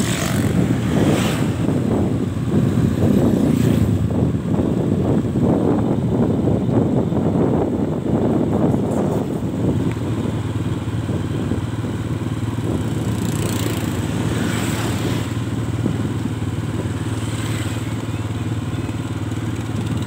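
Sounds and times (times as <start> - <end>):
scooters passing close: 0.0 - 1.9, 12.8 - 15.8
motorbike engine hum: 0.0 - 20.0
wind and road noise: 0.0 - 20.0.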